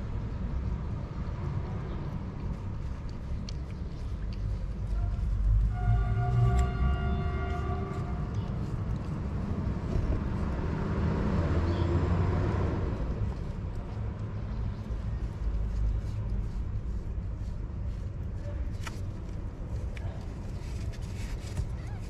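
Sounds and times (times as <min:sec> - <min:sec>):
low traffic rumble: 0:00.0 - 0:22.0
vehicle passing: 0:05.4 - 0:15.1.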